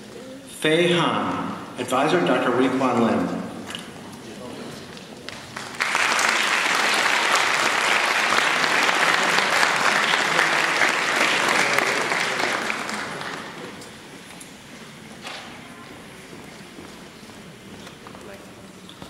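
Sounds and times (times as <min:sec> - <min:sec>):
audience applauding: 0:05.3 - 0:13.8.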